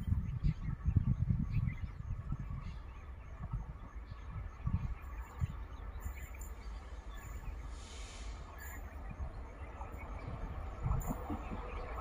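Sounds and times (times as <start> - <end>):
faint bird chirps: 0.0 - 12.0
brief hiss: 7.6 - 8.8.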